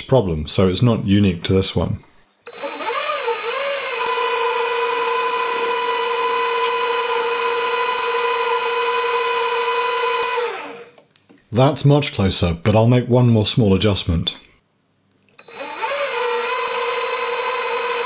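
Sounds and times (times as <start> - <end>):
lathe motor whine: 2.5 - 10.9, 15.4 - 18.0.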